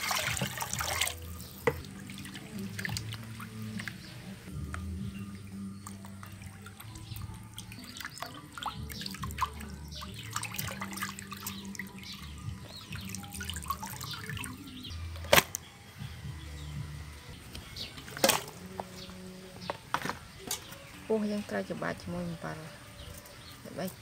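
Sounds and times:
water splashing and sloshing: 0:00.0 - 0:04.5, 0:05.8 - 0:15.5.

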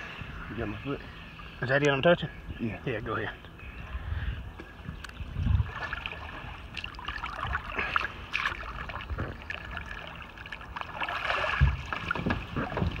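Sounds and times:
water splashing and sloshing: 0:04.6 - 0:13.0
low thump: 0:11.6 - 0:13.0.

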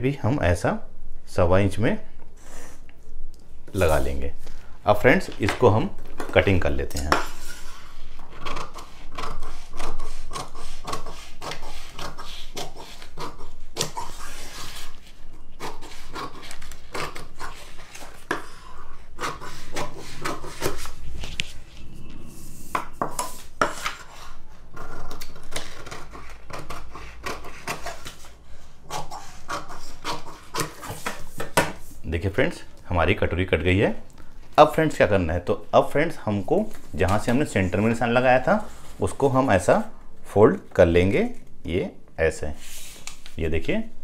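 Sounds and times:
scissors cutting cardboard: 0:08.4 - 0:15.0, 0:15.6 - 0:20.9, 0:23.2 - 0:28.3, 0:28.9 - 0:31.8.

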